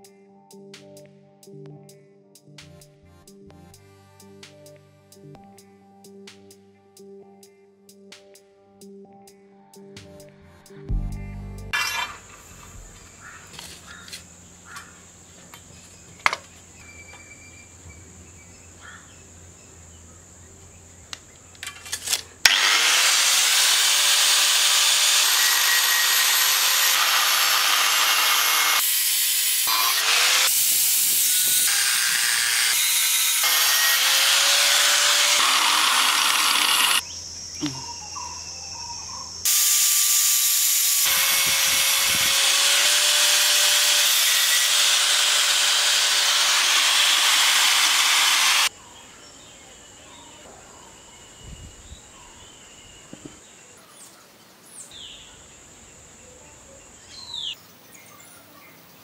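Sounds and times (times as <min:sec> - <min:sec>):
steady hum: 0:10.9 - 0:13.5
angle grinder cutting steel: 0:11.6 - 0:13.8, 0:21.7 - 0:37.0, 0:39.5 - 0:48.7.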